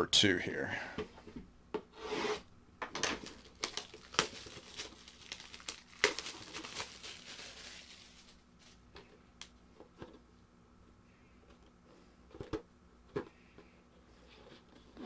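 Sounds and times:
shrink wrap crinkling and tearing: 0:03.0 - 0:08.8.

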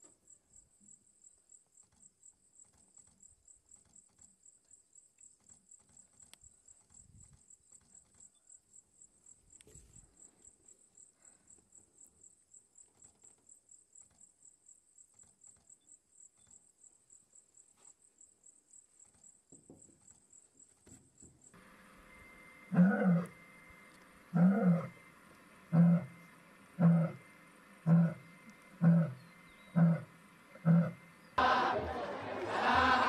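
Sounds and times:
cricket chirping: 0:00.0 - 0:31.4.

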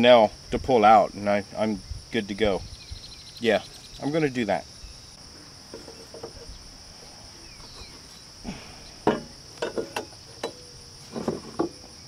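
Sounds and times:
insects droning: 0:00.0 - 0:12.0
metal knocks and clinks on wood: 0:05.7 - 0:06.5, 0:09.0 - 0:11.8.

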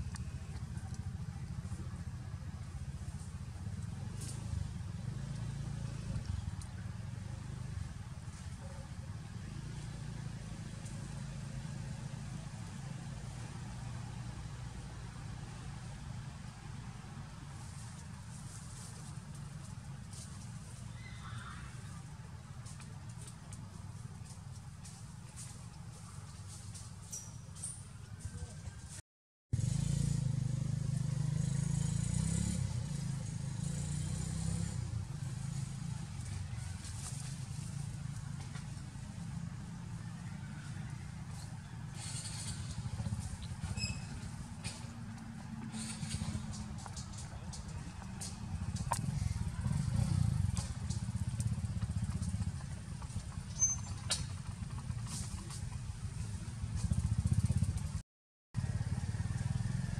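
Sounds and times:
vehicle engine rumble: 0:00.0 - 0:58.0, 0:58.6 - 0:59.9
faint ticks and rustles: 0:17.5 - 0:21.0, 0:22.4 - 0:28.7.

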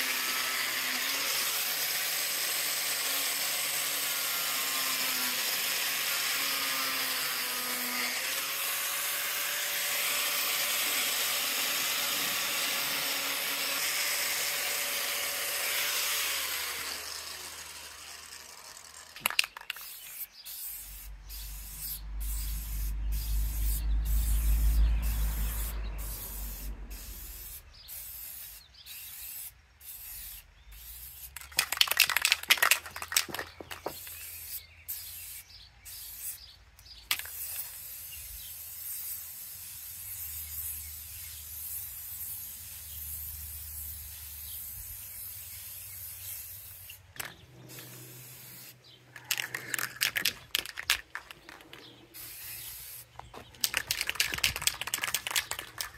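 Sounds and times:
spray paint can hissing: 0:00.0 - 0:55.9
low rumble: 0:21.0 - 0:27.8.

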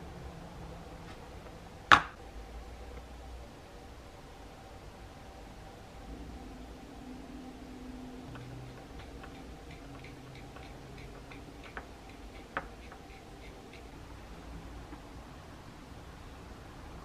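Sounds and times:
cotton swab rubbing on plastic: 0:08.4 - 0:14.0.

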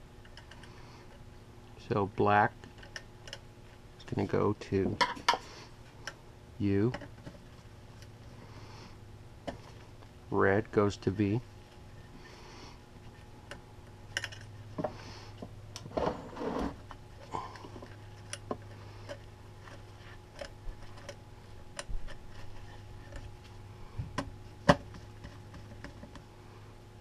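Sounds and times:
steady low hum: 0:00.0 - 0:27.0
gloved hands handling wires: 0:16.7 - 0:26.3.

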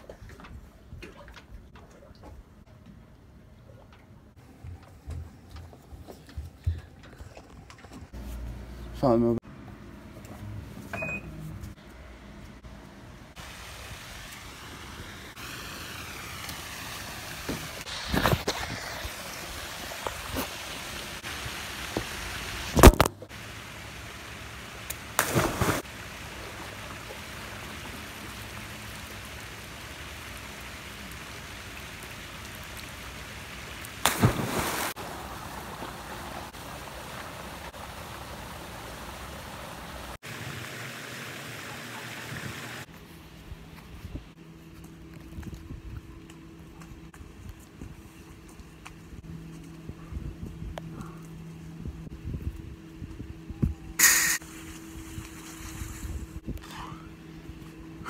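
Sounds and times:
pool water rushing and sloshing: 0:13.3 - 0:42.9
water splashes: 0:13.3 - 0:42.9.

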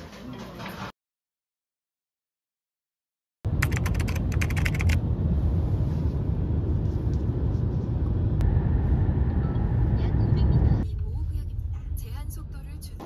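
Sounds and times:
road rumble inside car: 0:03.5 - 0:13.0.

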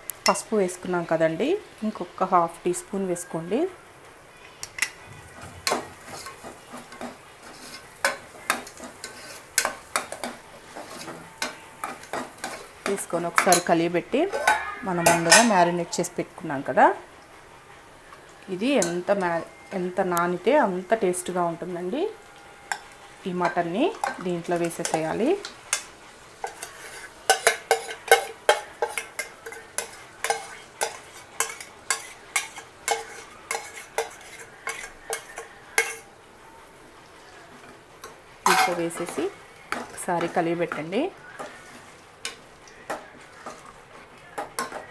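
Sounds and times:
light sizzle of frying: 0:00.0 - 0:44.9
spoon clinking against pot: 0:05.6 - 0:15.8, 0:18.8 - 0:19.5, 0:22.7 - 0:36.1, 0:38.4 - 0:41.6, 0:44.4 - 0:44.9.

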